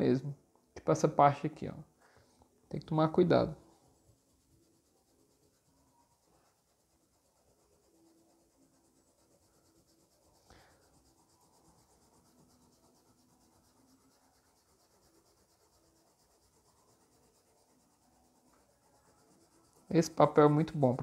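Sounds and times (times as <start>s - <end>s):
eraser rubbing on paper: 3.0s - 21.0s.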